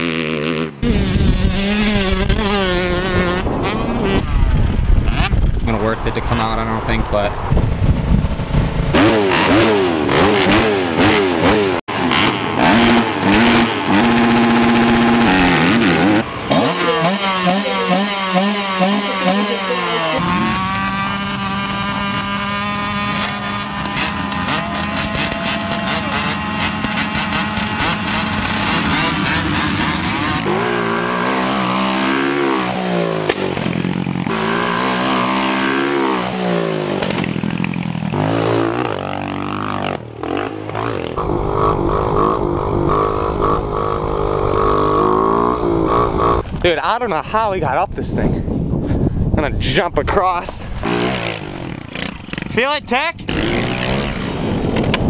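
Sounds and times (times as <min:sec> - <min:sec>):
dirt bike engines revving: 0:00.0 - 0:47.8, 0:49.6 - 0:55.0.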